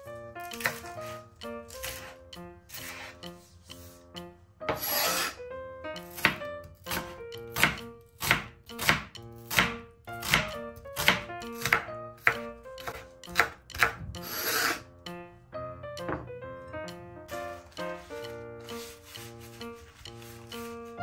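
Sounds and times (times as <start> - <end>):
knife slicing onion on board: 0.4 - 4.0, 6.1 - 14.8, 17.5 - 20.8
knife scraping board: 2.7 - 4.0, 4.7 - 5.4, 14.2 - 14.8, 17.5 - 20.9.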